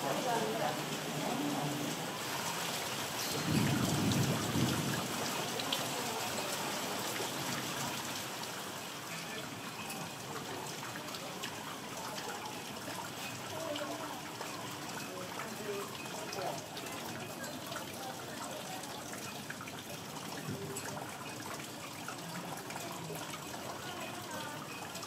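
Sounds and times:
heavy rain falling: 0:00.0 - 0:25.0
low rumble of thunder: 0:03.3 - 0:05.3.

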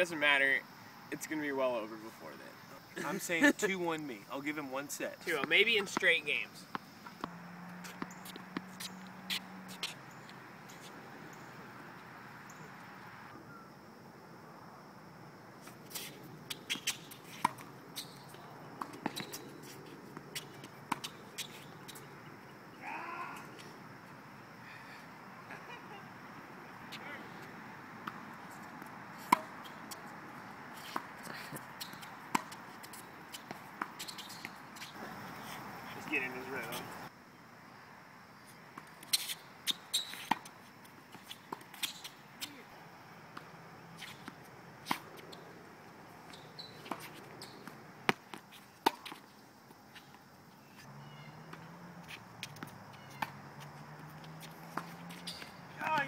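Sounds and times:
tennis ball bouncing: 0:05.4 - 0:10.0, 0:18.7 - 0:22.2, 0:28.0 - 0:35.2, 0:40.0 - 0:40.5, 0:46.2 - 0:49.2, 0:51.3 - 0:56.0
tennis ball struck by rackets: 0:32.3 - 0:32.6
rackets striking tennis ball: 0:46.4 - 0:49.2, 0:51.2 - 0:56.0.

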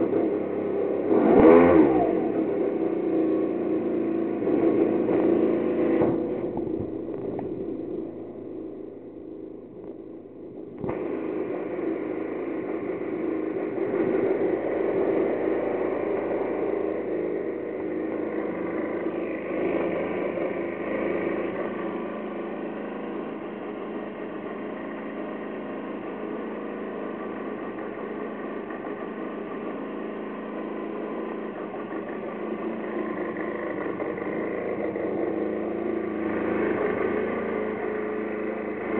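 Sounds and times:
two-stroke engine idling: 0:00.0 - 0:38.9.

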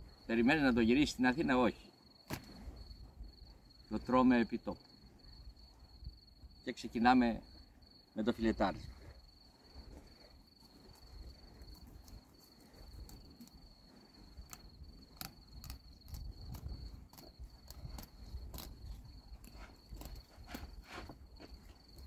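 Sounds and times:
crickets chirping: 0:00.0 - 0:22.0.

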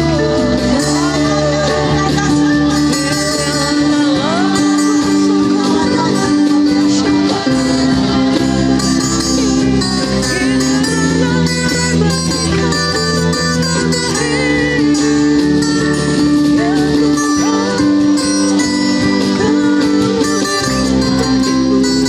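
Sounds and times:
acoustic guitar strumming: 0:00.0 - 0:22.0
person singing: 0:00.0 - 0:22.0.

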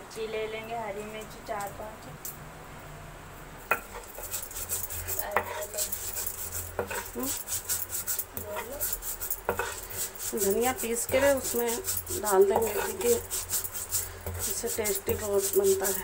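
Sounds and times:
stone crusher scraping and knocking: 0:03.7 - 0:16.0.

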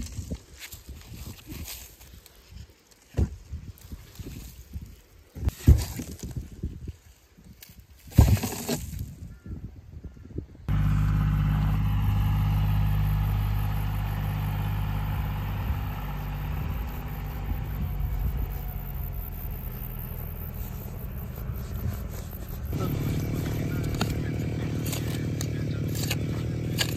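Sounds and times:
farm vehicle engine running: 0:10.7 - 0:26.9.

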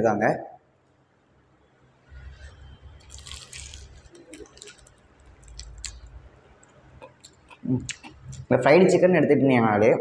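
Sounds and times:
crunchy biting and chewing: 0:02.2 - 0:08.5.

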